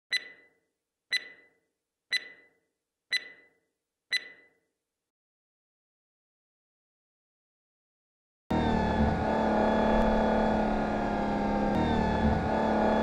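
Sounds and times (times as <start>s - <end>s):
sharp ringing ticks: 0.1s - 4.6s.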